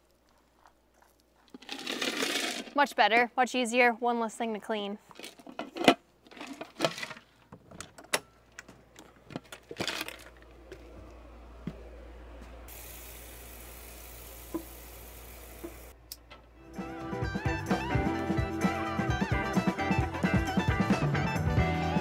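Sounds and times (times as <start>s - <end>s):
tap water running into a pot: 12.7s - 15.9s.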